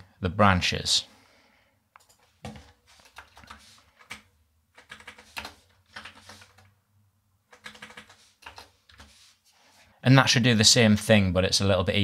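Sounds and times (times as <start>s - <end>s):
typing on a keyboard: 2.0s - 6.7s, 7.5s - 9.1s.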